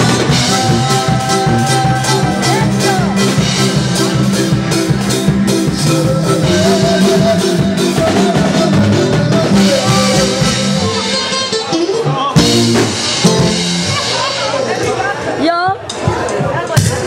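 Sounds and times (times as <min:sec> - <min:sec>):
loud dance music: 0:00.0 - 0:11.3.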